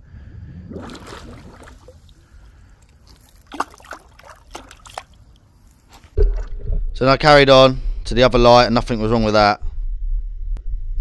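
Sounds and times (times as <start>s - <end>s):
pool water sloshing: 0.7s - 6.7s.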